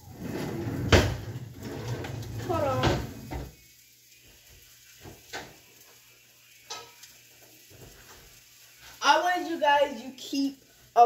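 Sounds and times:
kitchen utensils clinking: 0:00.0 - 0:03.5, 0:06.6 - 0:07.1.

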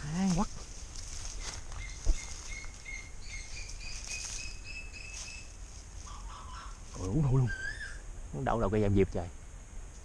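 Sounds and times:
high insect hiss: 0:00.0 - 0:10.0.

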